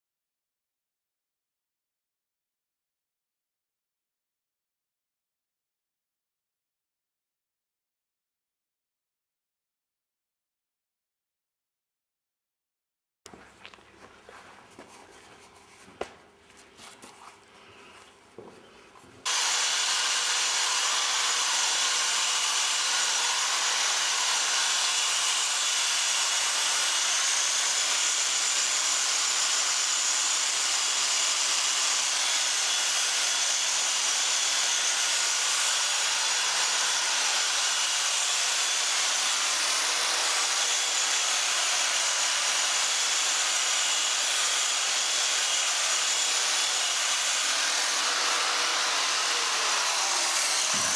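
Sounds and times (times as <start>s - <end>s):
angle grinder grinding metal: 19.2s - 50.9s.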